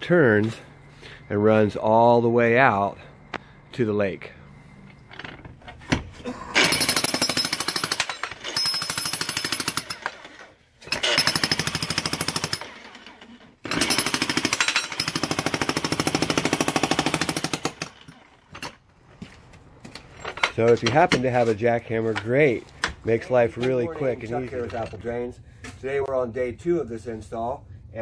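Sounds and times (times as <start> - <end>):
jackhammer hammering concrete: 6.6 - 10.2, 10.9 - 13.0, 13.6 - 18.2.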